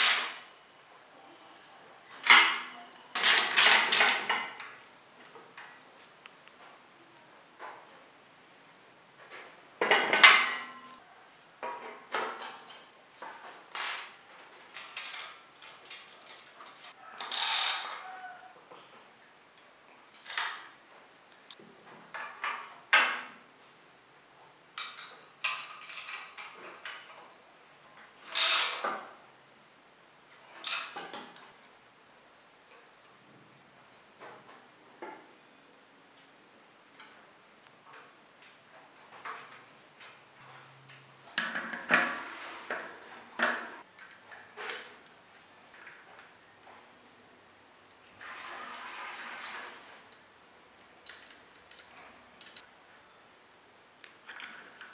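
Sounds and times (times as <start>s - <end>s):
socket ratchet clicking: 28.3s - 28.8s.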